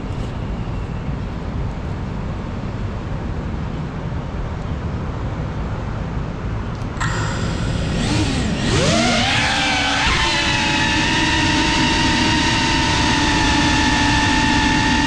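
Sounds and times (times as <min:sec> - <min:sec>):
outdoor background rumble: 0:00.0 - 0:15.0
drone motors whining: 0:07.0 - 0:15.0.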